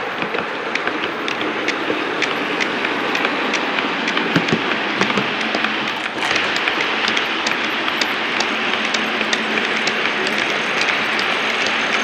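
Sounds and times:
metal wheels clicking on rails: 0.0 - 12.0
model wagons rolling rattle: 0.0 - 12.0.

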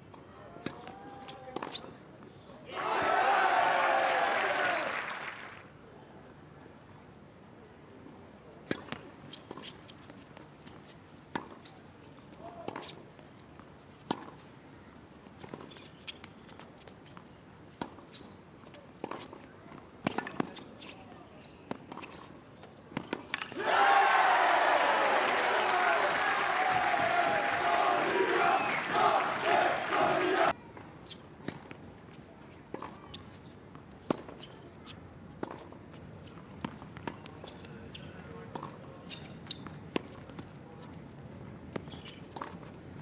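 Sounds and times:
crowd noise: 2.7 - 5.6, 23.5 - 30.9
tennis ball bouncing on hard court: 36.6 - 37.4, 38.5 - 40.5
tennis ball bouncing: 38.5 - 40.4, 41.7 - 42.8.

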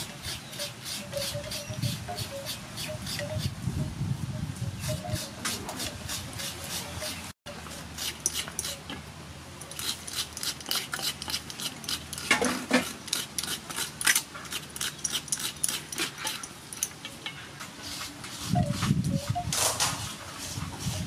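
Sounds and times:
scraper rasping coconut flesh: 0.0 - 3.6, 4.8 - 7.3, 9.7 - 16.4.

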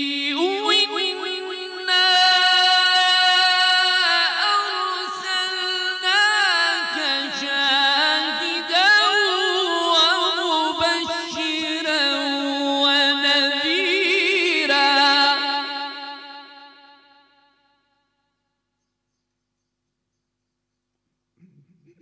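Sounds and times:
man reciting melodically: 0.0 - 16.4.

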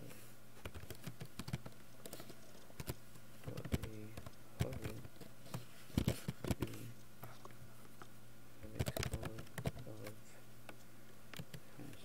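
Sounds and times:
keyboard typing: 0.6 - 7.4, 8.6 - 12.0.

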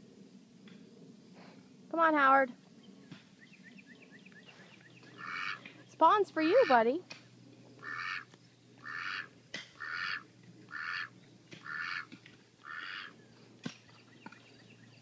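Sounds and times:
duck quacking: 5.2 - 5.7, 6.4 - 6.9, 7.8 - 13.2.

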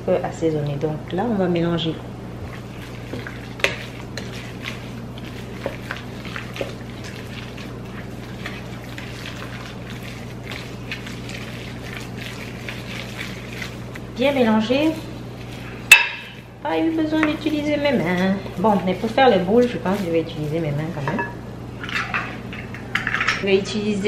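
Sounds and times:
meat mixture squelching: 2.4 - 21.2
spoon scraping glass bowl: 2.5 - 22.3
spoon knocking bowl: 15.9 - 16.4.

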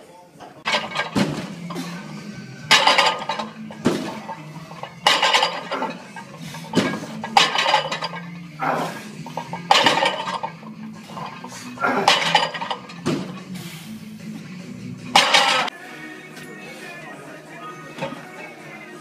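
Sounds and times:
weight plates clanking: 0.6 - 13.6, 15.1 - 15.7.

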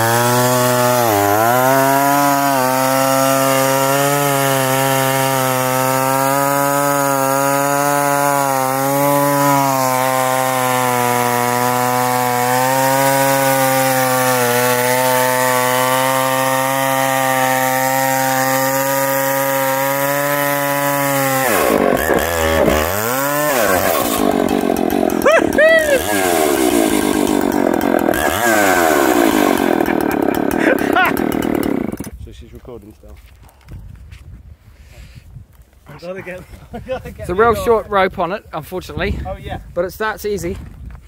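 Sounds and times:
chainsaw cutting wood: 0.0 - 32.2.

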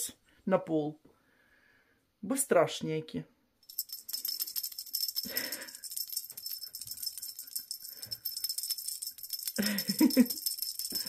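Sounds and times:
small bell jingling: 3.6 - 11.0.

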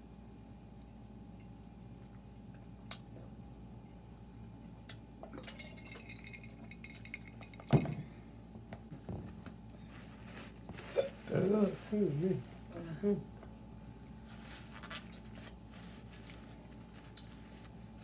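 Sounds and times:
eating and drinking sounds: 0.0 - 14.2
light clicks and clinks: 5.1 - 9.8.

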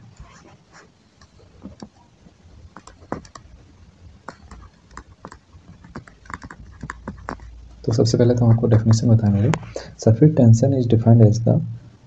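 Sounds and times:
stylus tapping on drawing tablet: 4.2 - 7.5.

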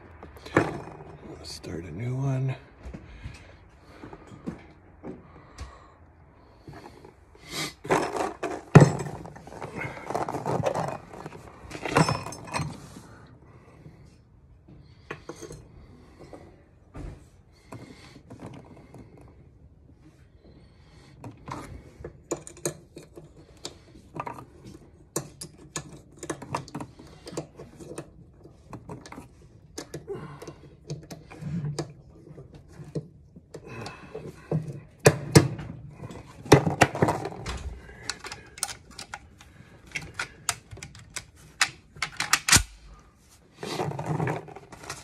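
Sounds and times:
metal cartridges clicking: 38.0 - 42.9.

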